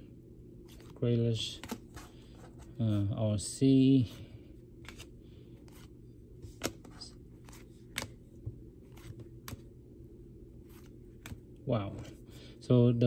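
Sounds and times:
faint low hum: 0.0 - 13.0
trading cards clicking: 6.6 - 8.2.

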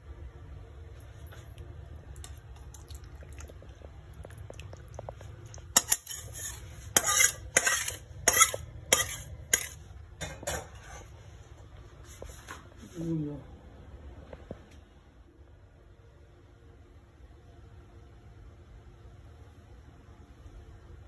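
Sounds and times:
metal cookware clinking and scraping: 5.7 - 11.1.

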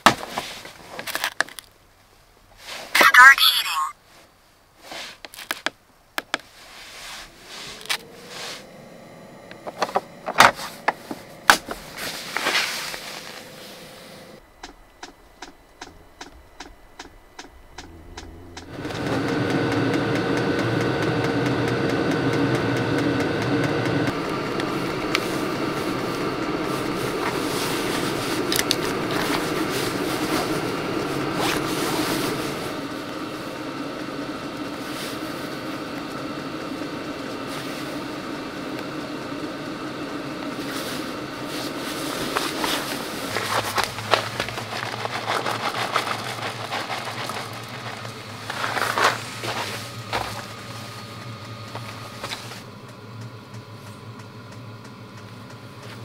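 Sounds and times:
machine-like hum: 6.7 - 56.0
scattered clicks and knocks: 14.6 - 19.1.

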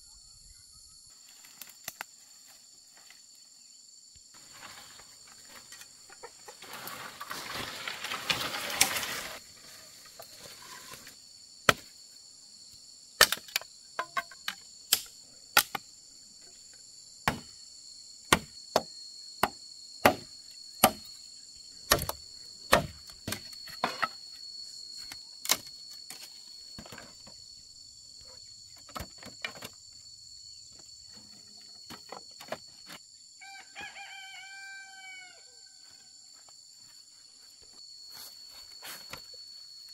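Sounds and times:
rustling: 4.4 - 11.1
insects shrilling: 4.4 - 11.5.

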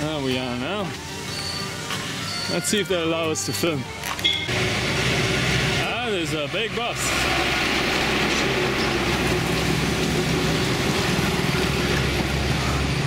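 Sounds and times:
bus engine humming: 0.0 - 13.0
road noise: 0.0 - 13.0.

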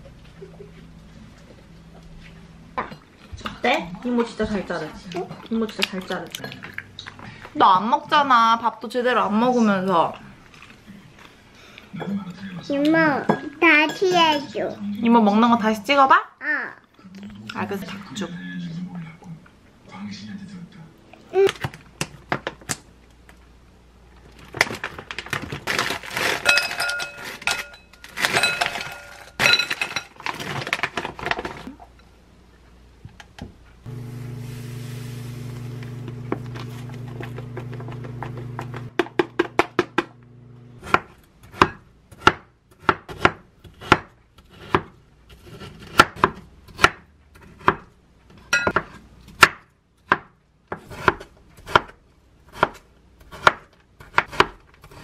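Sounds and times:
dishes clattering: 26.4 - 30.4
steady electrical hum: 31.8 - 41.4
knife chopping on wooden board: 40.8 - 47.9, 48.7 - 55.0.

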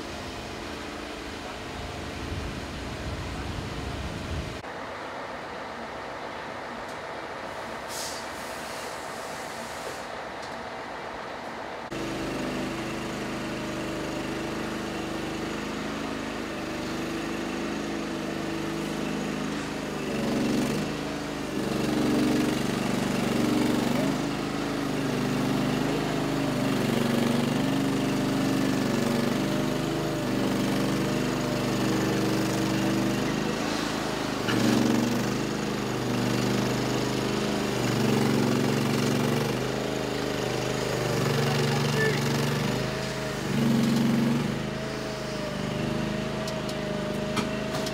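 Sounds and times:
truck engine running: 11.7 - 47.9.

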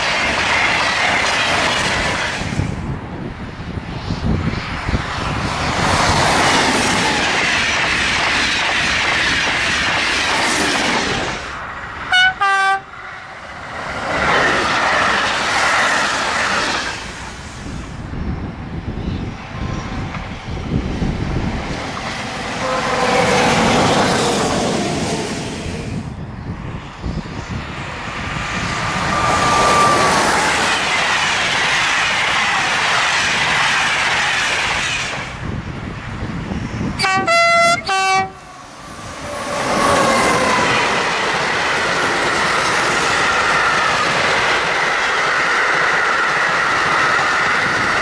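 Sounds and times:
electric trains passing at speed: 0.0 - 48.0
steady high tone: 28.7 - 30.7.

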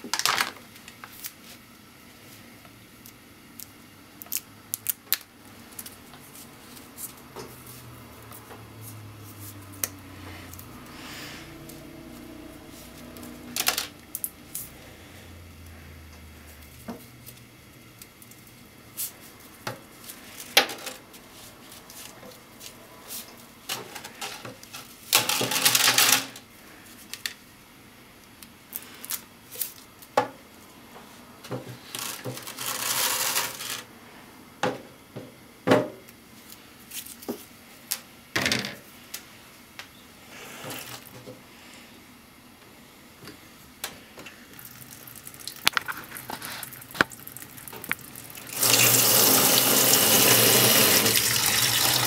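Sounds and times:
dried noodles rattling in plastic: 24.1 - 26.4, 31.8 - 33.9.

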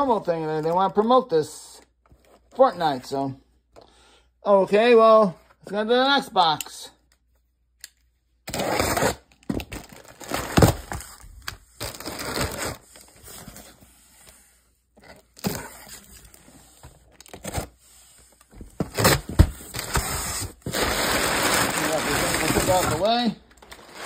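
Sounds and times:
box cutter slicing tape: 8.5 - 9.3, 18.8 - 23.0
cardboard scraping and rustling: 18.4 - 24.0.

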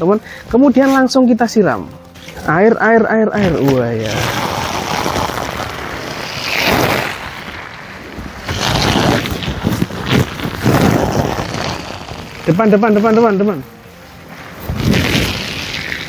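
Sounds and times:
hose water spraying on jacket: 3.4 - 16.0.

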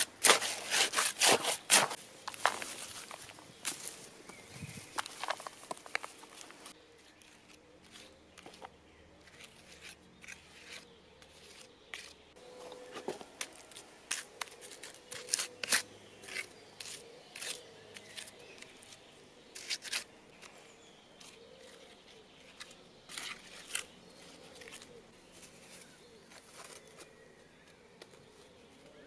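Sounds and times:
trowel scraping wet clay: 0.0 - 2.0, 9.2 - 12.2, 12.9 - 20.6, 21.2 - 24.9.

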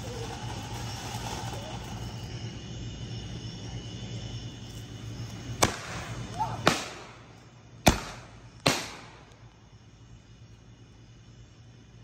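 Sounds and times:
firework bangs echoing: 5.6 - 9.4.

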